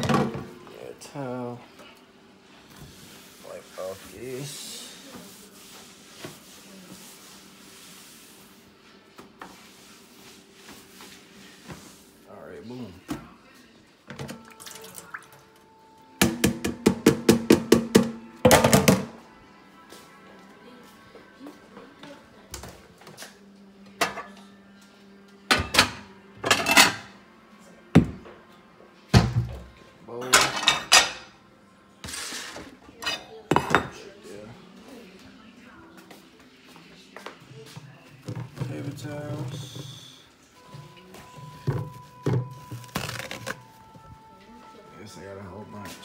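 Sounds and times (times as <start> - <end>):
ceramic plates clattering: 25.6 - 27.1, 30.3 - 31.3.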